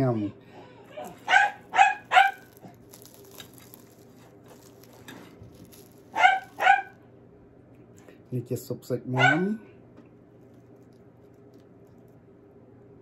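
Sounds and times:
dog yapping: 0.9s - 2.8s, 6.1s - 7.0s, 9.2s - 9.5s
croissant being torn: 1.0s - 7.0s, 10.3s - 12.2s.

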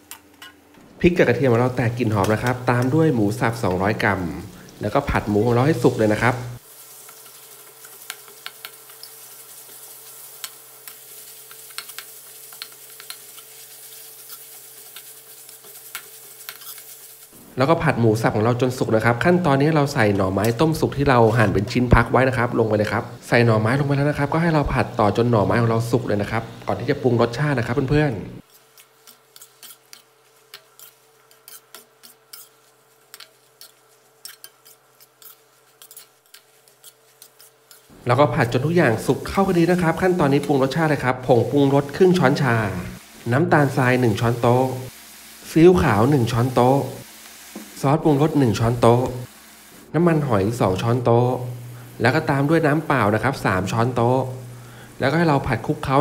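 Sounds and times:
meat sizzling in hot oil: 1.0s - 56.0s
metal ladle scraping a wok: 14.1s - 17.0s, 28.4s - 37.9s.

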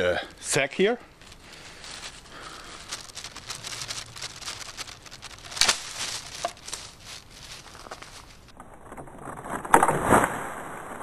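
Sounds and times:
plastic bag crinkling: 1.1s - 9.7s.

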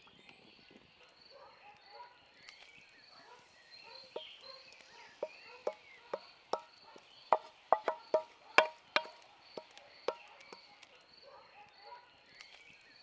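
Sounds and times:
wooden spatula knocking enamel bowl: 5.1s - 10.7s.

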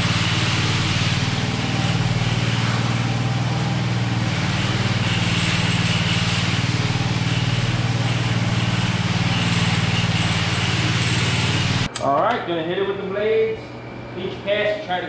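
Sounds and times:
power trowel engine running: 0.0s - 11.9s.

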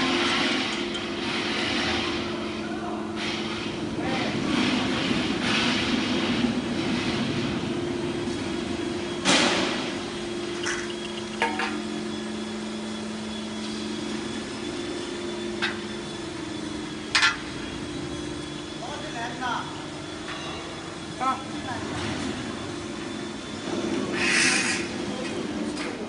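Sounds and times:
pump motor humming: 9.3s - 18.9s.

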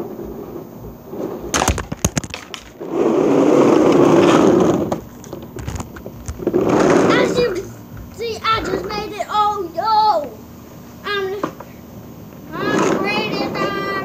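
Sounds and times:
plastic toy car rumbling on pebbles: 1.1s - 7.6s, 12.6s - 14.0s
sharp knocks clattering: 1.5s - 2.8s.

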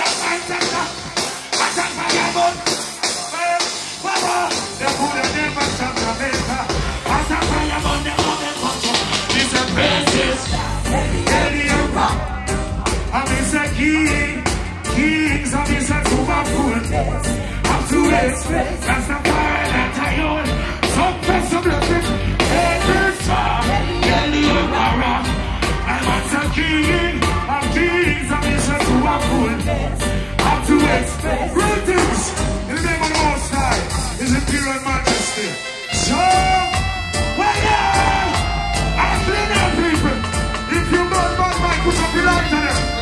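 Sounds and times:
reggae band playing: 0.0s - 43.0s
man singing into a microphone: 13.1s - 43.0s.

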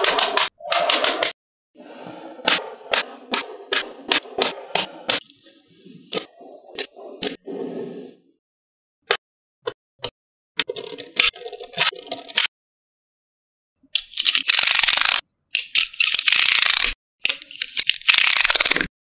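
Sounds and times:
magnetic balls clicking and rattling: 10.6s - 12.4s.

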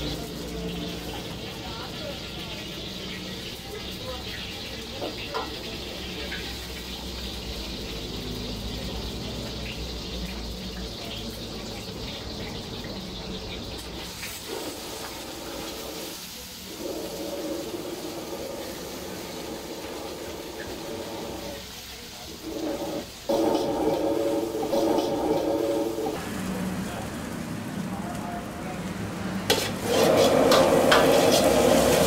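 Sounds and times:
egg sizzling in a wok: 0.0s - 12.9s, 13.6s - 26.5s, 29.5s - 32.0s
metal ladle scraping a wok: 22.3s - 26.2s, 29.5s - 32.0s.

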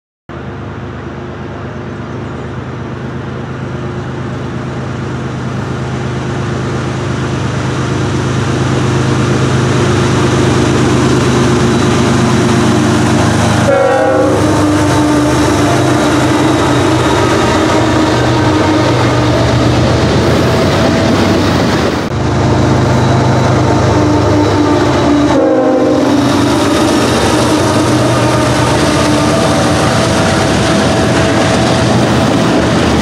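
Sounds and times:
locomotive engine rumble: 0.3s - 33.0s
train horn: 12.7s - 19.7s, 23.5s - 32.0s.

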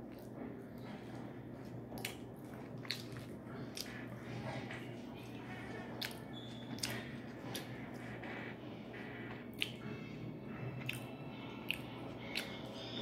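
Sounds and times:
wet chewing: 0.0s - 9.9s, 10.8s - 13.0s
mouth smacks and clicks: 1.9s - 2.2s, 2.8s - 4.0s, 6.0s - 7.8s, 9.5s - 9.9s, 10.8s - 12.6s.

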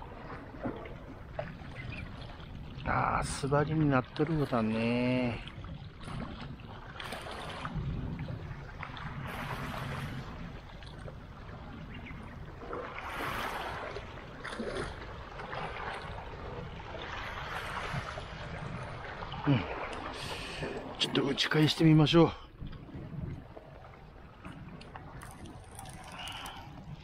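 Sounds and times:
waves splashing against rocks: 12.4s - 27.0s.

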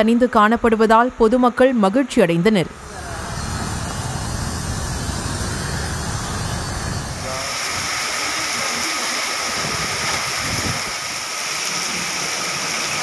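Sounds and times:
low rumble: 2.6s - 8.7s
falling rain hiss: 7.2s - 13.0s
tyre spray on wet road: 7.3s - 13.0s.

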